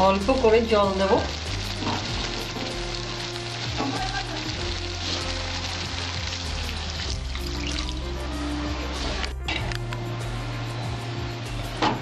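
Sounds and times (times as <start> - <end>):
spice paste sizzling in oil: 0.0 - 9.2
water poured into pan: 1.0 - 9.3.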